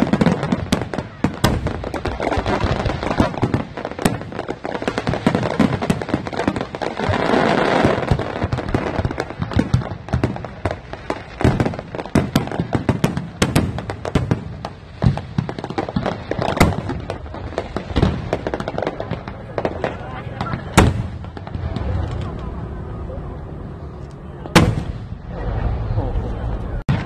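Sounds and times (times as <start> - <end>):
fireworks bangs and cracks: 0.0 - 23.7, 24.4 - 27.0.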